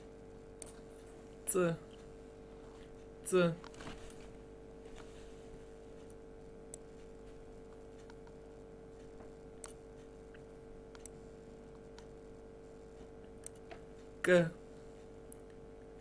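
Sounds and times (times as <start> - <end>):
faint steady hum: 0.0 - 16.0
computer mouse clicking: 6.0 - 8.4, 9.0 - 12.2, 13.0 - 13.9.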